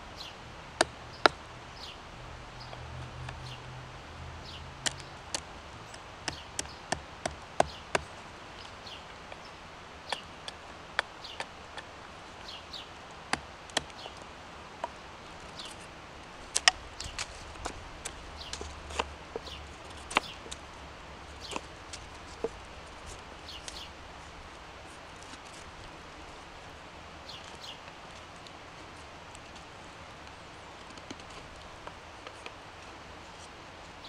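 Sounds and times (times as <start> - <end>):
hatchet striking wood: 6.3 - 8.1, 13.3 - 14.0.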